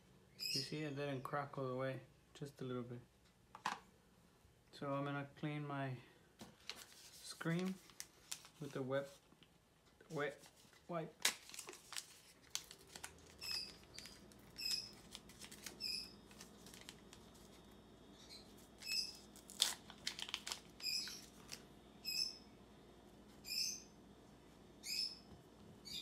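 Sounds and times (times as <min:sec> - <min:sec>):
wet-wipe sachet tearing: 0:06.6 - 0:08.8, 0:11.2 - 0:17.7, 0:18.5 - 0:21.7
bird chirping: 0:13.4 - 0:15.0, 0:15.8 - 0:16.2, 0:18.1 - 0:19.2, 0:20.8 - 0:21.4, 0:22.0 - 0:22.5, 0:23.4 - 0:24.0, 0:24.8 - 0:26.0.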